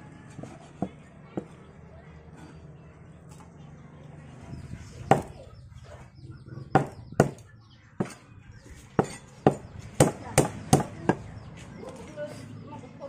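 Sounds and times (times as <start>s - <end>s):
cleaver chopping on wooden block: 6.8s - 7.4s, 9.0s - 11.3s.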